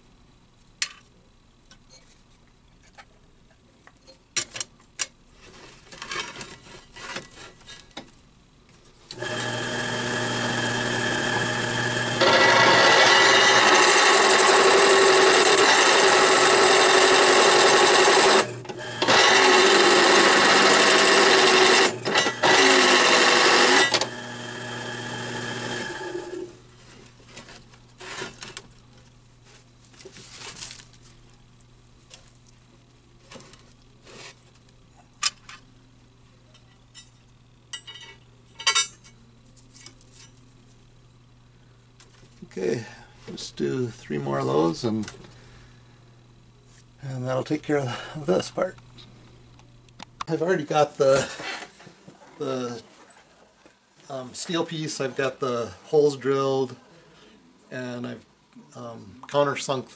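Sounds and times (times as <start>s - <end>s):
drill press grinding steel: 9.1s - 26.6s.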